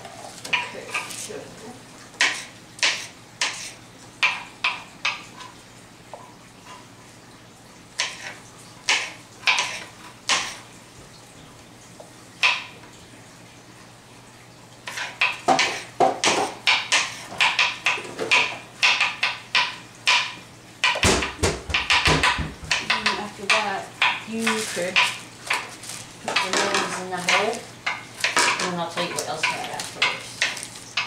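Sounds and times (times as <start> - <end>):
knife chopping on cutting board: 2.2 - 4.8, 8.9 - 10.6, 14.9 - 25.7.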